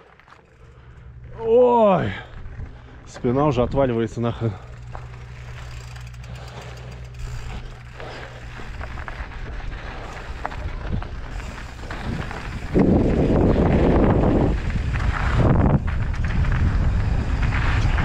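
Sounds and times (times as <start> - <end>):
bike clicks and rattles: 0.0 - 18.0
bike tyre hum: 0.0 - 18.0
wind buffeting microphone: 7.1 - 18.0.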